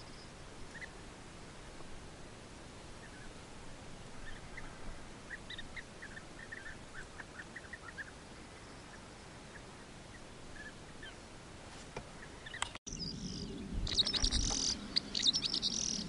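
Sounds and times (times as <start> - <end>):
birds calling: 0.0 - 1.0, 4.1 - 11.3, 12.0 - 16.0
steady outdoor hiss: 0.0 - 16.0.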